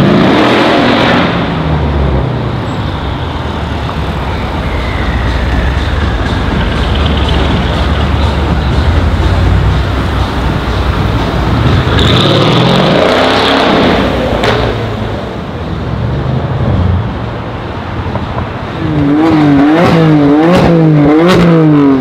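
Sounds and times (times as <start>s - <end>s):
car engine accelerating: 3.6s - 15.4s, 18.2s - 22.0s
exhaust crack: 5.1s - 15.0s.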